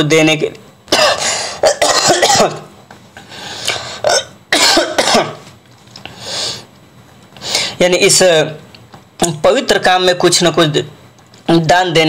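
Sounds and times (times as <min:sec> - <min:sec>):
man coughing: 0:00.9 - 0:02.7, 0:04.0 - 0:05.5.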